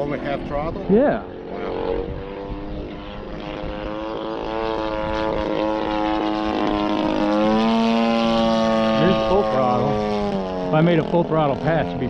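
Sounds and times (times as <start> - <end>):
model airplane propeller drone: 0.0 - 12.0.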